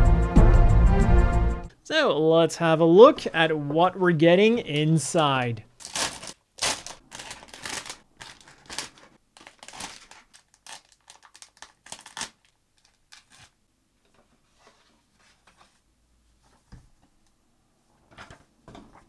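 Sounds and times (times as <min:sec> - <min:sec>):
plastic packaging crinkling: 0:05.8 - 0:13.6.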